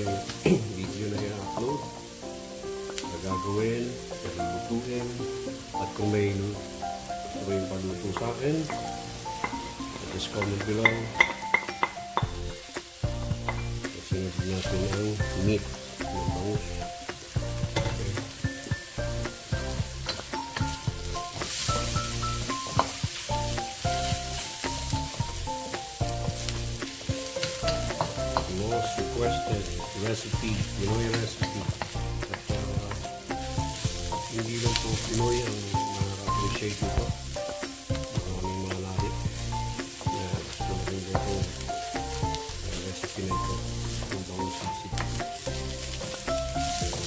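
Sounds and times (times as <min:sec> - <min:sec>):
food sizzling in a wok: 0:00.0 - 0:47.0
soft melodic music with bass: 0:00.0 - 0:47.0
spatula scraping metal wok: 0:08.2 - 0:37.6.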